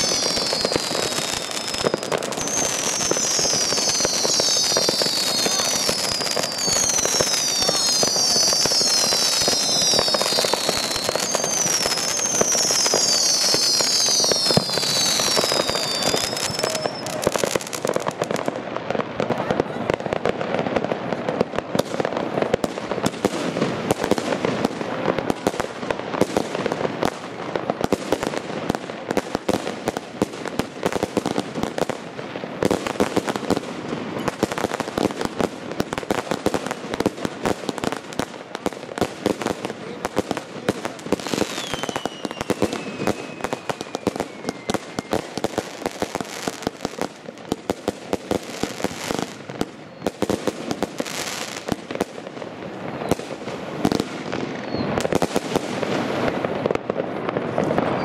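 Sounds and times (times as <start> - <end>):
falling firework whistle: 0.0 - 18.2, 41.1 - 47.1, 48.4 - 52.0, 52.9 - 56.4, 57.6 - 58.0
fireworks bangs and crackling: 0.0 - 58.0.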